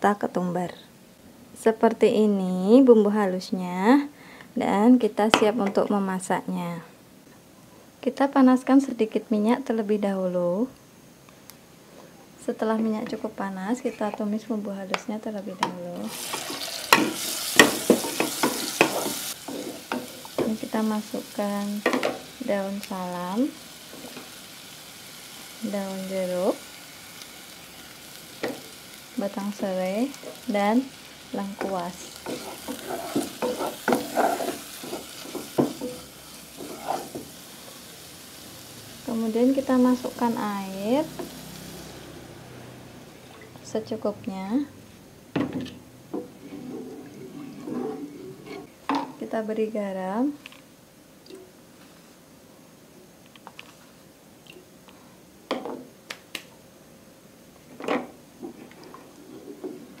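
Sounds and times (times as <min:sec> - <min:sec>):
low sizzle: 0:00.0 - 1:00.0
wooden spatula scraping pot: 0:16.1 - 0:20.6, 0:31.5 - 0:37.3, 0:46.2 - 0:48.7, 0:57.8 - 1:00.0.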